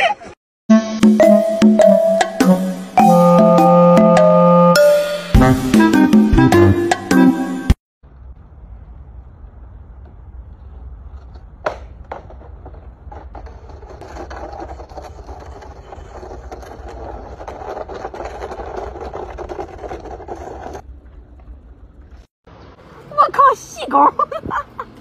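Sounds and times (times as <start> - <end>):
steady low rumble: 8.0 - 11.6
ladder scraping on concrete: 12.2 - 20.8.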